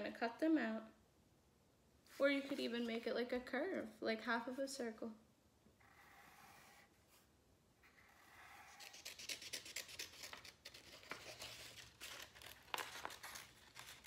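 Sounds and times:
pencil scratching on paper: 5.8s - 10.4s
scissors snipping paper: 8.7s - 14.0s
paper crinkling: 8.8s - 14.0s.

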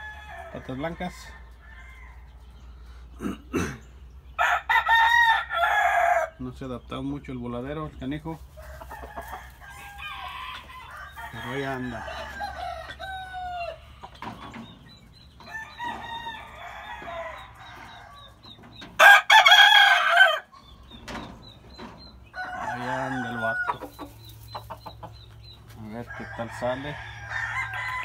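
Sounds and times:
roosters clucking: 0.0s - 28.0s
rooster crowing: 4.4s - 6.3s, 8.6s - 13.8s, 15.5s - 18.3s, 19.0s - 20.5s, 22.3s - 23.9s, 26.1s - 28.0s.

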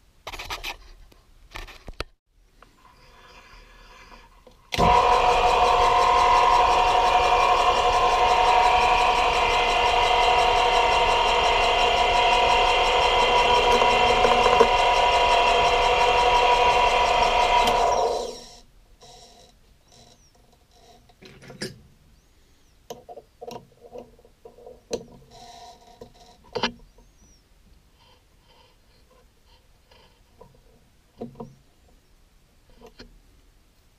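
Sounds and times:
lathe motor whining: 4.7s - 19.3s.

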